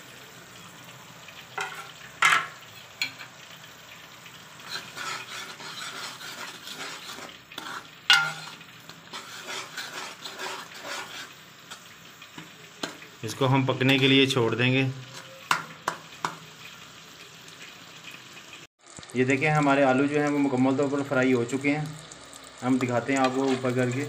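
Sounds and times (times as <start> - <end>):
masala sizzling in a pot: 0.0 - 24.0
metal spatula scraping a pot: 1.6 - 3.3, 4.6 - 13.1, 14.9 - 16.4, 23.2 - 24.0
spatula clanking against pot: 8.1 - 8.6, 15.1 - 16.4.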